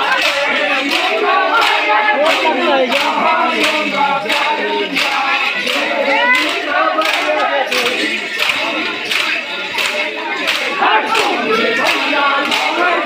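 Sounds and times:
crowd chanting and shouting: 0.0s - 13.0s.

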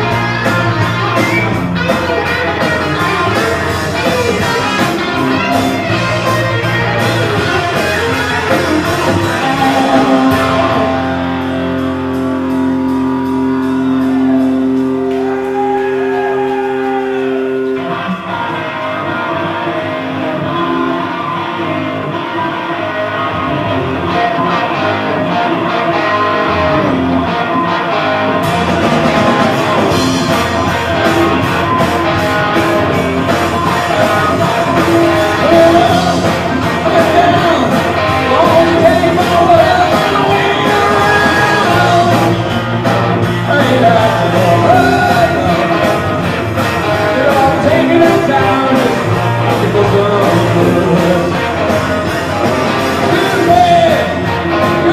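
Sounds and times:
drums and cymbals: 0.0s - 17.9s, 28.4s - 54.9s
electric guitar: 0.0s - 54.9s
live rock band: 0.0s - 54.9s
person singing: 1.2s - 11.5s, 28.5s - 54.9s.

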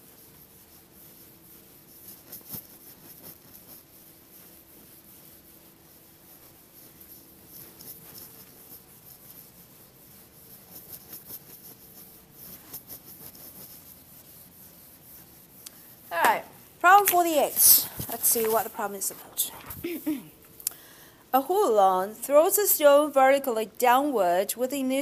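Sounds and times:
eraser rubbing on whiteboard: 0.0s - 19.8s.

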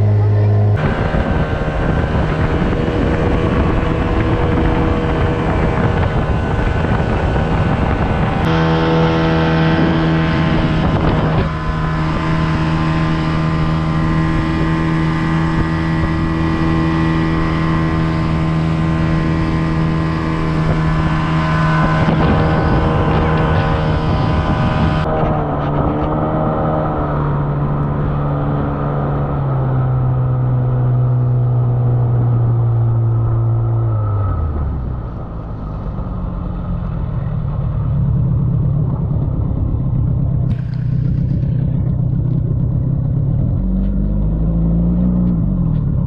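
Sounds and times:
outboard motor running: 0.0s - 25.9s, 34.7s - 44.3s
wind buffeting microphone: 0.0s - 46.0s.

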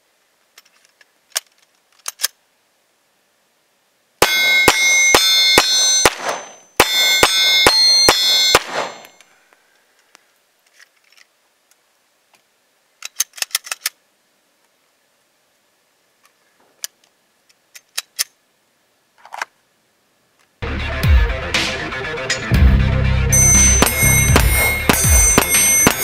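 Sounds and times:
pistol shots: 4.2s - 9.2s, 23.8s - 26.0s
steel targets ringing: 4.2s - 9.2s, 23.3s - 26.0s
light clicks of pistol handling: 9.1s - 14.0s.

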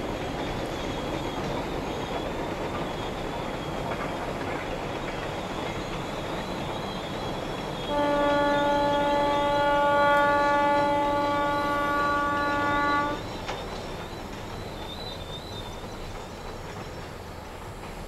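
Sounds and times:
freight train running on track: 0.0s - 18.0s
steam locomotive whistle: 6.0s - 13.6s.

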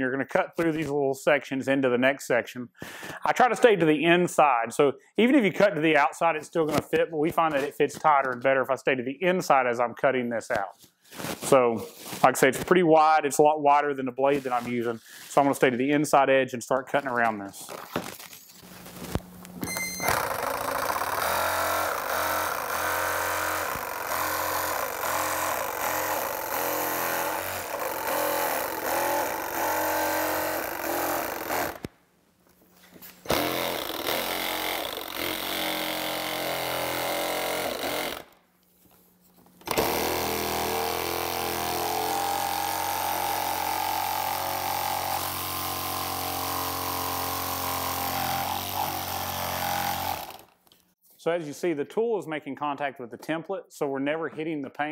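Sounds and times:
reciprocating saw cutting plastic: 20.0s - 31.9s, 33.2s - 38.4s, 39.6s - 50.6s.

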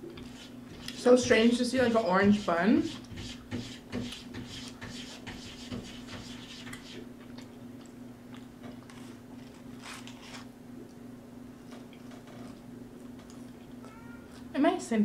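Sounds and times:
chewing food: 6.7s - 10.2s, 11.6s - 14.5s.

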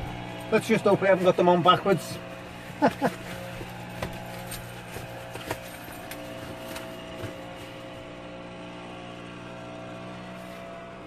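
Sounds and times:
steady low hum: 0.0s - 11.0s
rustling of over-trousers: 2.3s - 8.1s.

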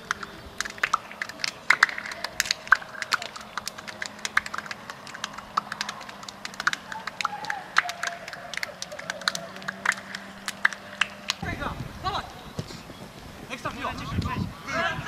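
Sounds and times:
hand slaps and claps: 0.0s - 11.4s.

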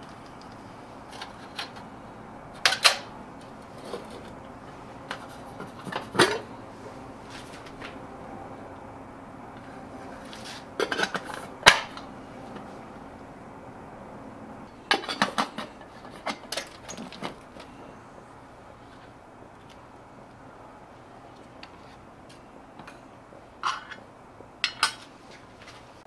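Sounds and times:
aluminium pot and lid clattering: 10.8s - 12.0s, 14.9s - 17.4s.

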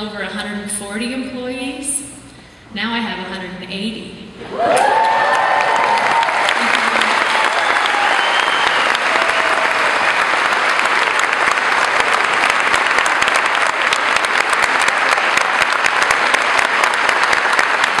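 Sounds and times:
crowd applauding: 4.5s - 18.0s.

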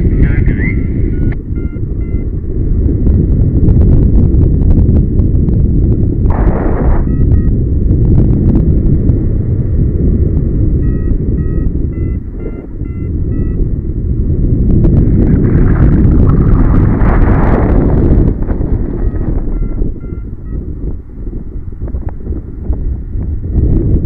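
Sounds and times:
wind buffeting microphone: 0.0s - 24.0s
variometer short beeps: 1.0s - 2.3s, 6.4s - 7.6s, 10.8s - 13.7s, 19.0s - 20.7s.

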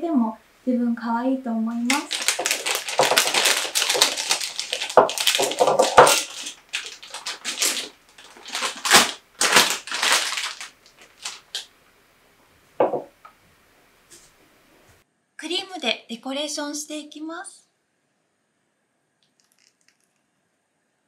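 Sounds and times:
plastic piping bag crinkling: 1.7s - 11.7s.

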